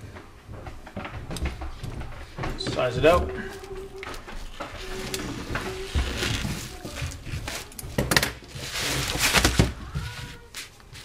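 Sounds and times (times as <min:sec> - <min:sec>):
sharp knocks and clicks: 0:00.1 - 0:03.3
plastic bag crinkling: 0:03.3 - 0:11.0
scissors cutting plastic bag: 0:03.6 - 0:10.5.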